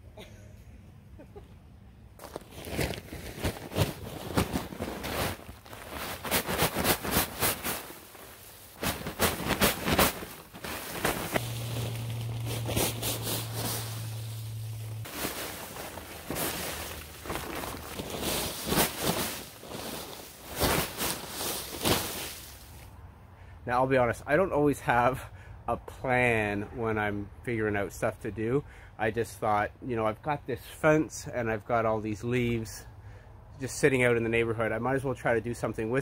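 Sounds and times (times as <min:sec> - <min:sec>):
footsteps crunching on dry leaves: 0:02.2 - 0:22.9
paper bag rustling: 0:02.2 - 0:22.9
steady low hum: 0:03.6 - 0:22.0.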